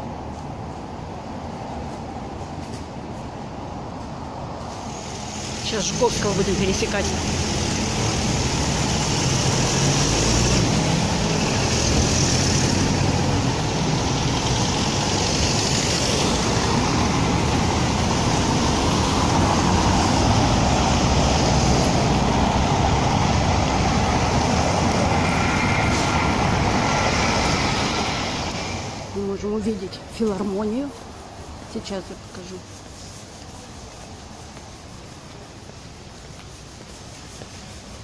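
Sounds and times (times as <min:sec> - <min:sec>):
passing cars: 0:00.0 - 0:38.0.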